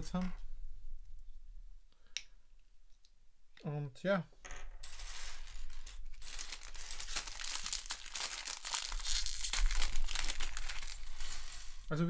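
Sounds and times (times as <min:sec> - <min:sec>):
plastic bags crinkling: 0:05.2 - 0:12.0.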